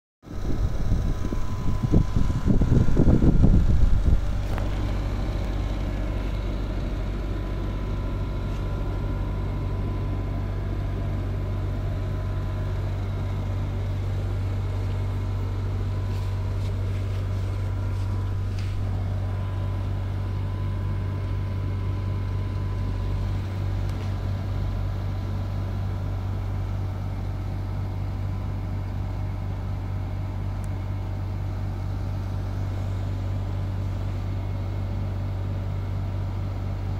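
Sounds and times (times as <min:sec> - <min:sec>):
air conditioner running: 0:00.2 - 0:36.9.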